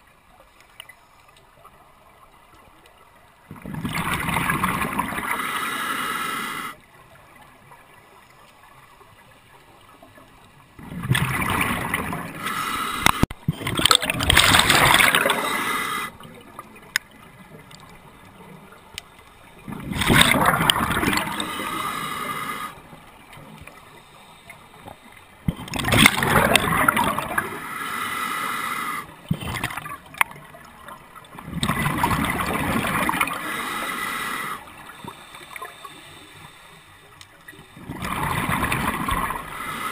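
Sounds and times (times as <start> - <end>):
exhaled bubbles gurgling: 3.5 - 6.8, 10.8 - 18.8, 19.5 - 23.8, 25.4 - 27.8, 28.7 - 35.9, 37.4 - 39.9
regulator inhalation hiss: 5.4 - 6.8, 12.4 - 13.2, 15.2 - 16.2, 21.4 - 22.8, 27.6 - 29.1, 33.4 - 37.2, 39.4 - 39.9.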